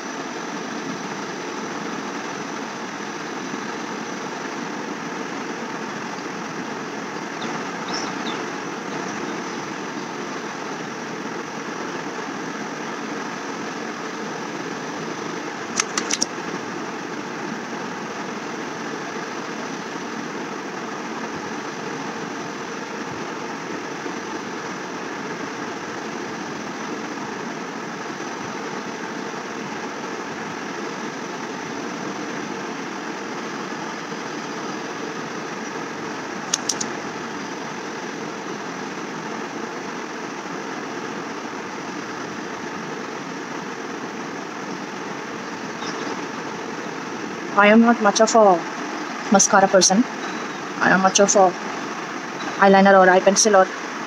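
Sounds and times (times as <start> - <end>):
steady machine noise: 0.0 - 54.0
quick sharp clicks: 15.8 - 16.3, 36.5 - 36.9.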